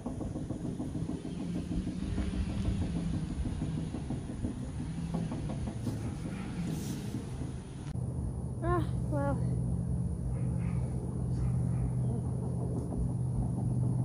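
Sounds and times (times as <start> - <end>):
soft knocks: 0.0 - 7.9
merry-go-round rumbling: 0.0 - 14.0.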